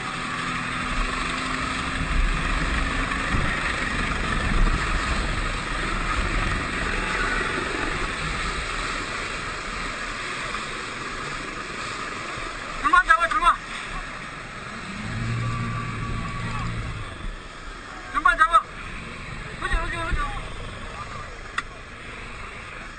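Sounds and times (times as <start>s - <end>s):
wind buffeting microphone: 0.0s - 12.8s
boat motor: 0.0s - 22.9s
low rumble: 0.0s - 22.9s
rushing water: 0.0s - 22.9s.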